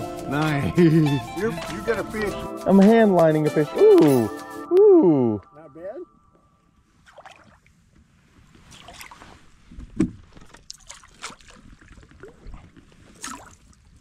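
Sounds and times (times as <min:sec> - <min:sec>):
fish splashing in water: 0:10.4 - 0:13.9.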